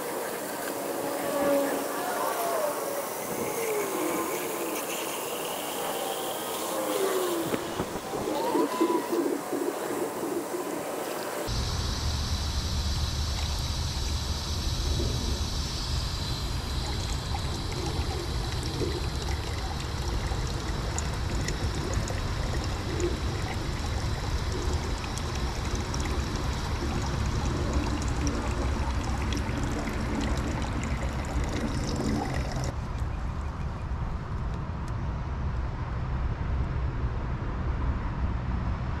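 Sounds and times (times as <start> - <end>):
hose water trickling into pipe: 11.0 - 32.8.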